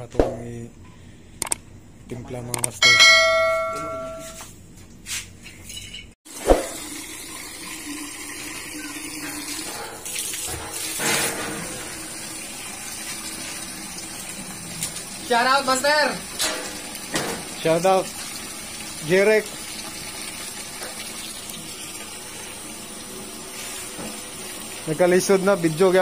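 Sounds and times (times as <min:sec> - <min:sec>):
notification chime: 0:02.8 - 0:04.4.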